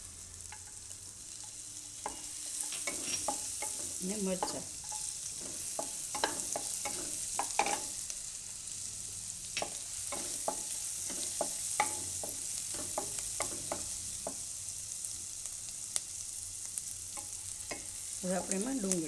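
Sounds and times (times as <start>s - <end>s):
garlic sizzling in butter: 0.0s - 19.0s
wooden spatula scraping pan: 2.1s - 7.9s.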